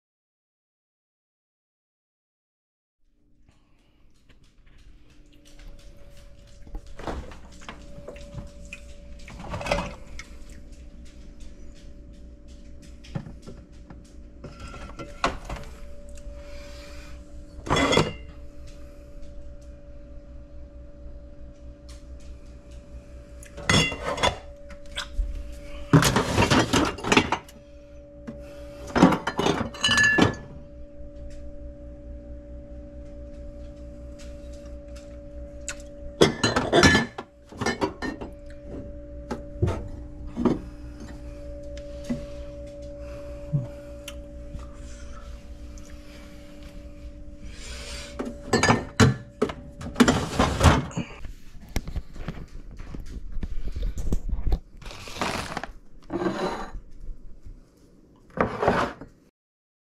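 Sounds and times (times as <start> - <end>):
steady low hum: 3.0 - 58.4
glassware and dishes clinking: 17.6 - 18.3, 23.6 - 24.5, 28.9 - 30.5, 36.2 - 38.3, 48.2 - 51.2.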